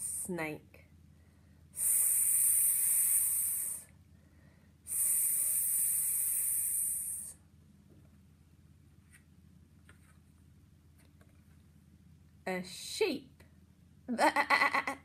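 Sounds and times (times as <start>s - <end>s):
woman imitating snake hiss: 1.8s - 3.9s, 4.9s - 7.4s.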